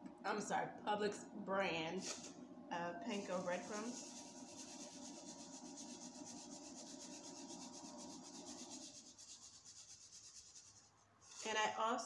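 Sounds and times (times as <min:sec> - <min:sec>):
breadcrumbs rustling as sprinkled: 0:03.2 - 0:11.6.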